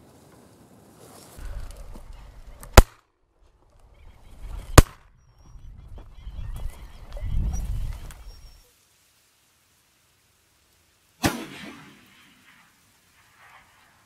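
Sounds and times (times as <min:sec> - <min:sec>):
shotgun shots: 0:02.7 - 0:03.0, 0:04.8 - 0:05.0, 0:11.2 - 0:12.6.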